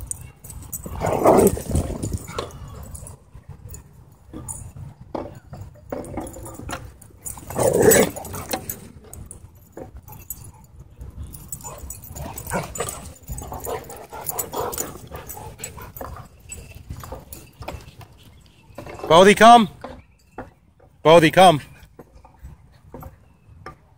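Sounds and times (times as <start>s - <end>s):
dogs growling and whining: 0.8s - 3.1s, 7.2s - 8.9s.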